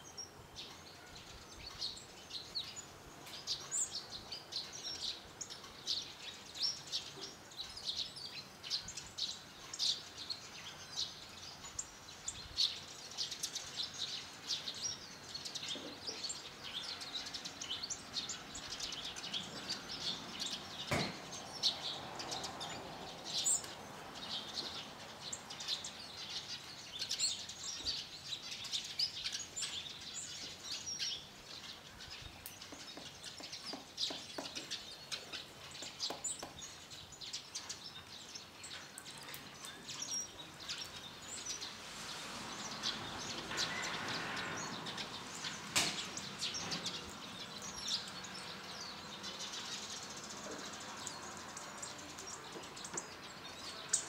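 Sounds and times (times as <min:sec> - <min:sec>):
birds chirping: 0:00.0 - 0:54.0
sharp knock: 0:20.9 - 0:21.3.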